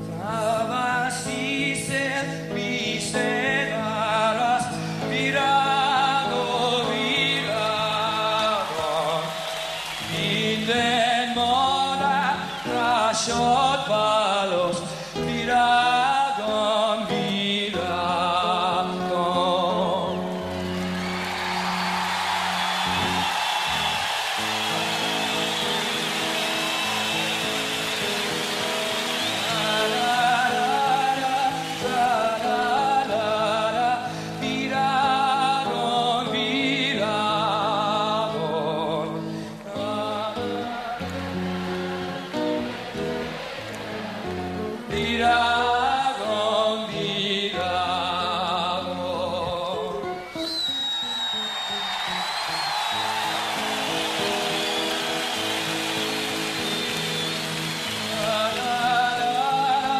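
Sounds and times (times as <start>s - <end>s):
man singing folk song: 0.0s - 20.4s, 28.6s - 41.8s, 44.7s - 50.5s, 57.9s - 59.9s
acoustic guitar accompaniment: 0.0s - 59.9s.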